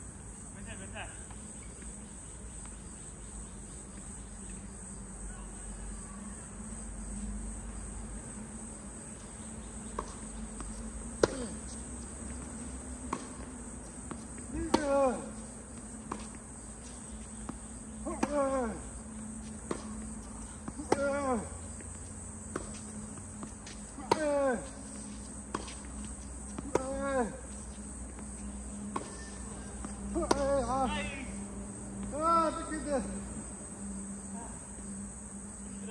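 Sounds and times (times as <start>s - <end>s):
insects chirring: 0.0s - 35.9s
racket hitting tennis ball: 9.8s - 31.4s.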